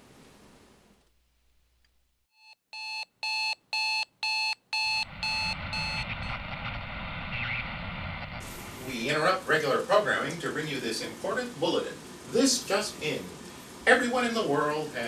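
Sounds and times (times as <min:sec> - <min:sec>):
steady hiss: 0:00.0 - 0:01.9, 0:05.1 - 0:15.0
short electronic beeps: 0:02.4 - 0:06.4.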